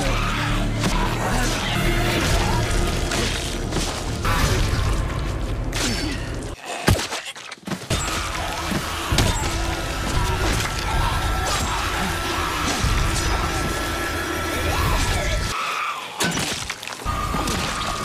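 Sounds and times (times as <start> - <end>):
background music: 0.0 - 6.6, 7.9 - 15.6.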